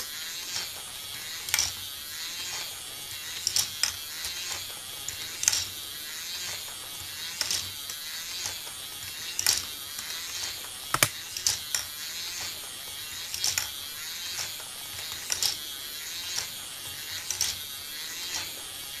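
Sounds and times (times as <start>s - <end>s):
electric motor and gears whirring: 0.0s - 19.0s
sharp plastic clacks: 10.9s - 11.8s.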